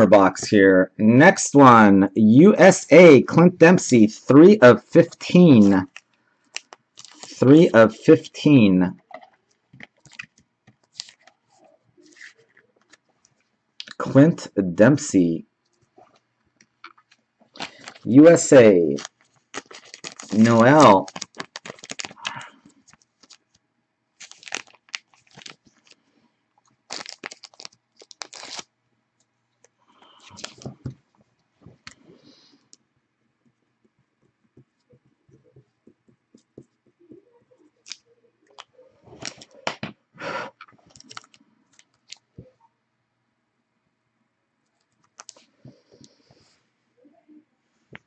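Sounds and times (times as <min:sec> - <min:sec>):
plastic card sleeves crinkling: 0:04.3 - 0:14.2, 0:16.0 - 0:23.6, 0:24.2 - 0:28.7, 0:30.0 - 0:31.0, 0:37.8 - 0:39.8, 0:40.7 - 0:42.5, 0:45.0 - 0:46.2.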